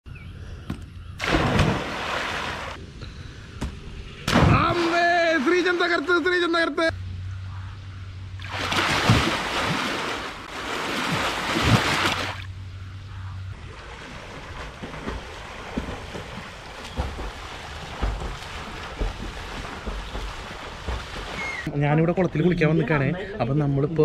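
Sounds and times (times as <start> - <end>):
pond water splashing: 1.2 - 2.8, 4.2 - 6.7, 8.3 - 12.6, 13.6 - 21.7.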